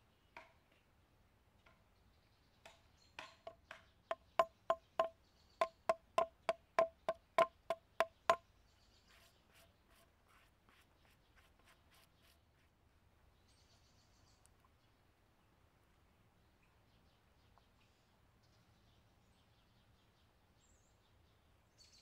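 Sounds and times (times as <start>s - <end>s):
hatchet striking log: 3.2s - 8.4s.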